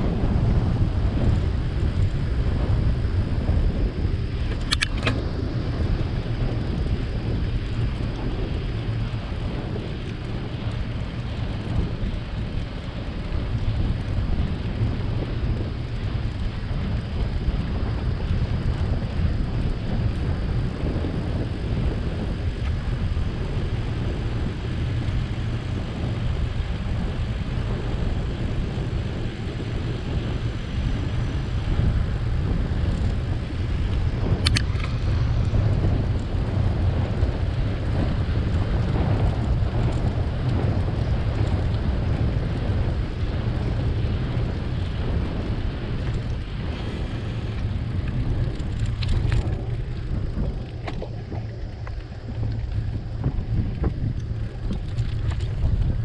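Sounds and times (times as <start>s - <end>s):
wind rumble on microphone: 0.0s - 56.0s
sharp click: 4.5s - 5.2s.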